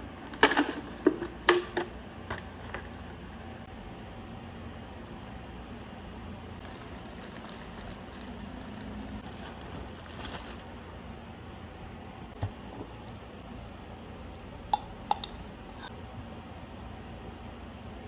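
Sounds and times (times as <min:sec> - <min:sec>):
low room hum: 0:00.0 - 0:18.0
plastic bag crinkling and rustling: 0:06.6 - 0:10.8.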